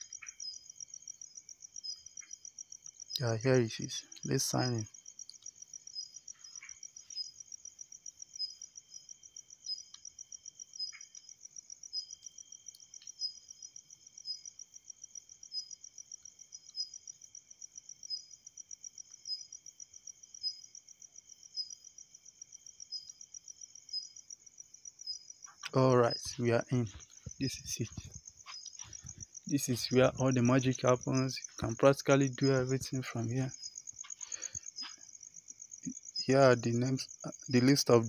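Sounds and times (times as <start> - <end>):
insects trilling: 0.0 - 38.0
sharp insect chirp: 0.0 - 38.0
faint clicks: 5.2 - 5.6, 12.6 - 13.2.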